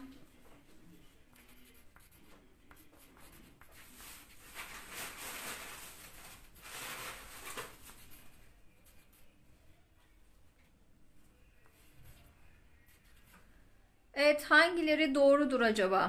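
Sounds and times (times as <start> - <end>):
paper rustling: 3.2 - 8.4.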